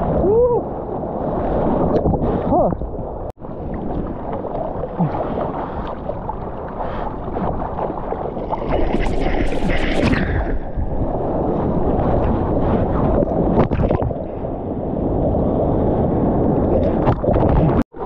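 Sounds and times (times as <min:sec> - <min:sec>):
water splashing against surfboard: 0:03.5 - 0:10.8.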